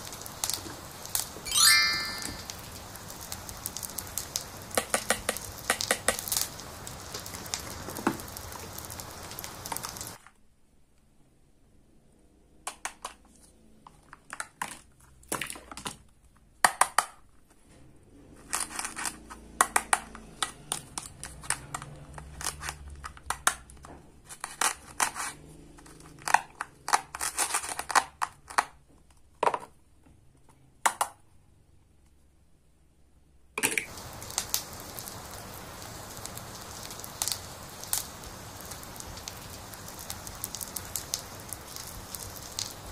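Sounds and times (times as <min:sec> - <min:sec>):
plastic toys clicking and tapping: 0:04.7 - 0:06.5, 0:12.7 - 0:13.3, 0:13.9 - 0:17.4, 0:18.4 - 0:29.8, 0:30.8 - 0:31.2
plastic toys scraping: 0:18.1 - 0:19.5, 0:24.2 - 0:28.1.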